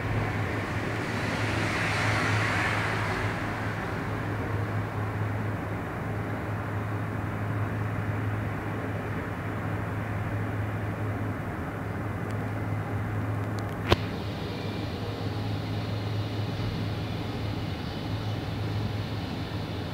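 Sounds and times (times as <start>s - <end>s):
train running noise inside carriage: 0.0s - 19.9s
low hum: 13.9s - 19.9s.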